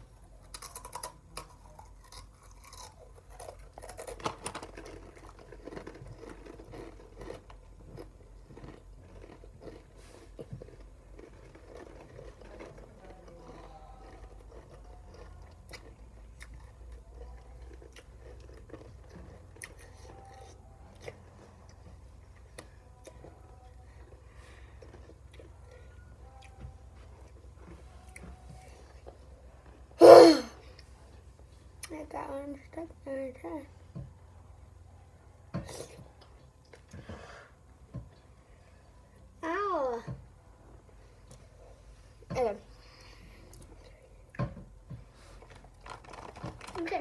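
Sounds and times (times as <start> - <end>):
people crunching chips: 0.3 - 26.5, 45.2 - 47.0.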